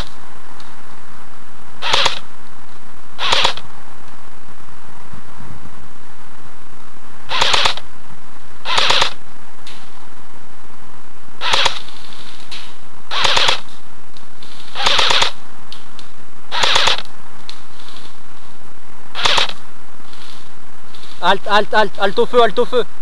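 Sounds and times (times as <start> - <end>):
airsoft rifle full-auto bursts: 1.8 - 2.3, 3.2 - 3.6, 7.3 - 7.8, 8.6 - 9.2, 11.4 - 12.3, 13.1 - 13.7, 14.4 - 15.4, 16.5 - 17.1, 19.2 - 19.6.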